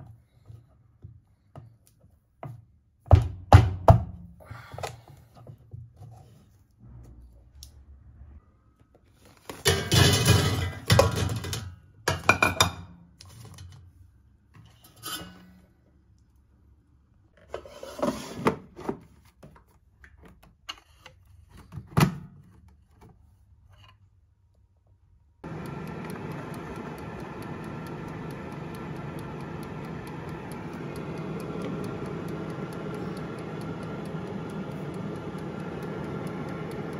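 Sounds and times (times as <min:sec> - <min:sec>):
air fryer basket clatter: 0:09.6 - 0:12.6, 0:25.5 - 0:36.9
air fryer fan whirring: 0:09.7 - 0:11.6, 0:25.4 - 0:36.9
dial timer ticking: 0:25.4 - 0:36.9.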